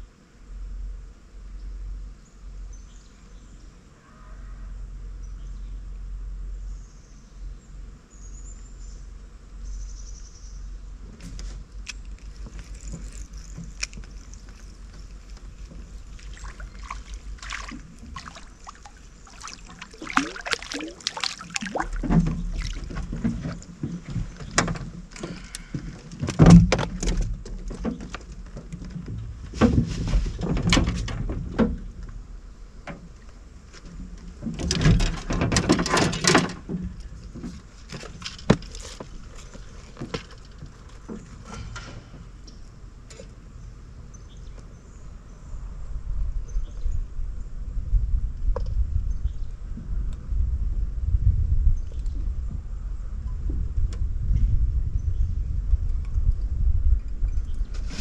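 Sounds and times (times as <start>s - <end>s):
clicks knocks and rattles: 21.6s - 31.9s, 34.2s - 42.0s.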